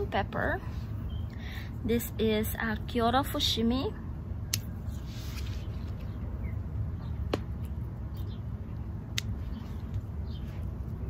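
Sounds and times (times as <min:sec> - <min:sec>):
leaves rustling: 0:04.8 - 0:06.2.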